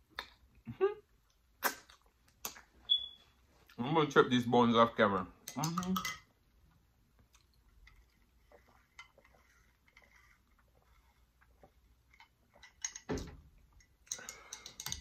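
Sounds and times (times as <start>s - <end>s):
wet mouth sounds: 0.0s - 2.7s
mouth clicks: 1.6s - 2.7s.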